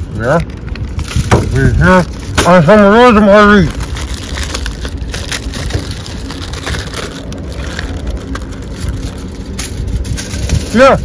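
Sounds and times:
steady low rumble: 0:00.0 - 0:11.0
rosemary sprigs crackling snapping: 0:03.5 - 0:09.6.

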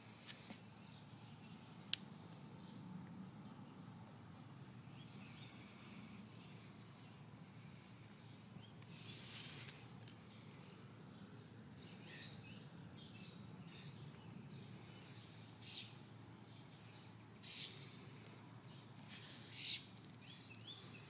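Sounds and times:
short hiss: 0:08.9 - 0:09.9.

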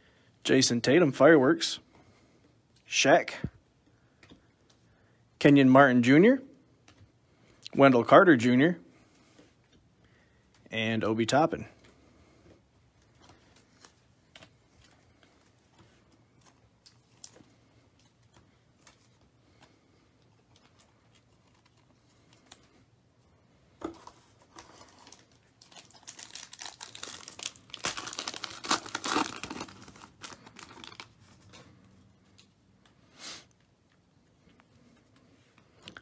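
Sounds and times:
foil wrapper crinkling and tearing: 0:24.5 - 0:31.4.

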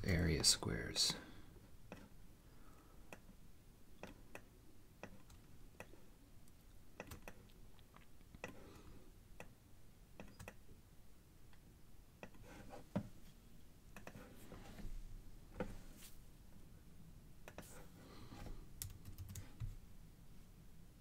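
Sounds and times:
mouse and keyboard clicking: 0:07.0 - 0:07.5.

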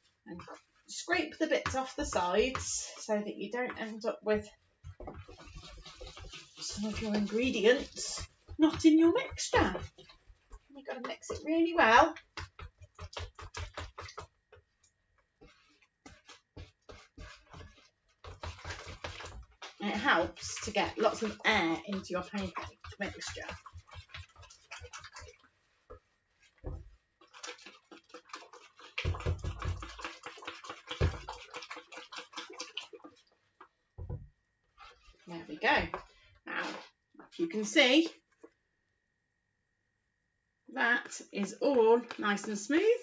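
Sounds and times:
whisk clattering in plastic bowl: 0:04.8 - 0:14.6, 0:15.4 - 0:25.5, 0:26.6 - 0:33.2.

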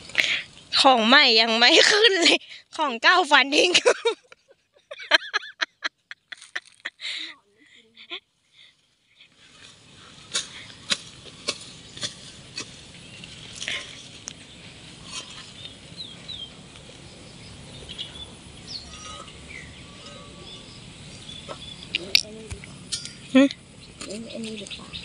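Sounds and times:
outdoor hiss: 0:00.0 - 0:05.6, 0:06.8 - 0:25.0
garden tool chopping into soil: 0:10.2 - 0:12.8
bird chirps: 0:12.9 - 0:25.0.

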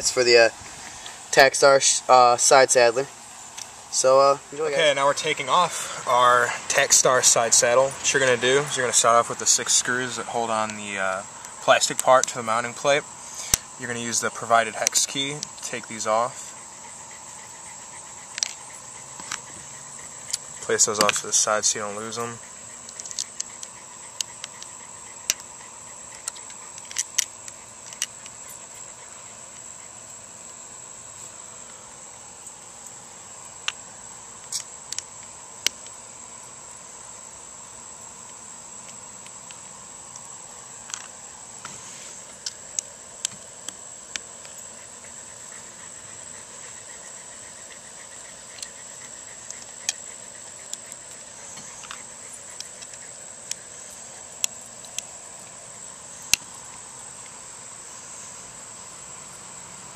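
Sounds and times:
high-pitched insect drone: 0:00.0 - 0:59.9.

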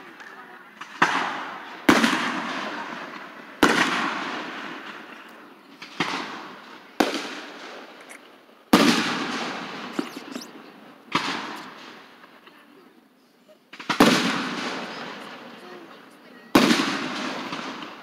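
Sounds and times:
fireworks booming with echo: 0:00.8 - 0:12.4, 0:13.7 - 0:18.0
small firework pops: 0:05.8 - 0:12.5, 0:13.7 - 0:15.4, 0:16.6 - 0:18.0.

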